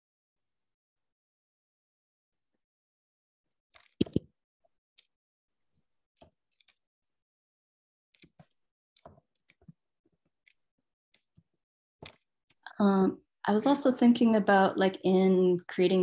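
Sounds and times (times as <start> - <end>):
computer mouse clicks: 3.8 - 4.2.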